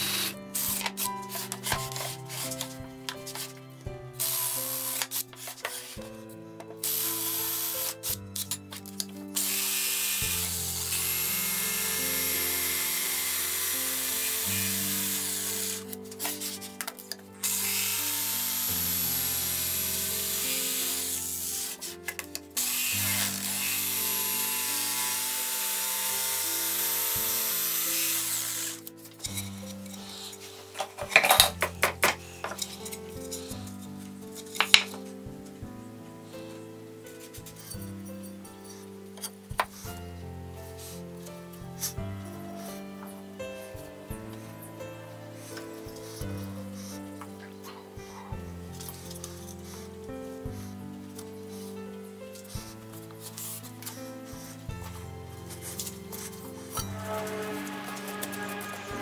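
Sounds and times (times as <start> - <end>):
power drill drilling: 0.0 - 1.2, 4.2 - 5.6, 6.8 - 8.0, 9.4 - 16.0, 17.4 - 21.8, 22.6 - 28.9
jigsaw buzzing: 0.0 - 2.6, 4.2 - 5.5, 6.8 - 8.1, 9.4 - 16.6, 17.4 - 21.9, 22.6 - 29.4
brush sweeping sawdust: 0.0 - 3.6, 4.2 - 6.2, 53.1 - 59.0
background music: 0.0 - 59.0.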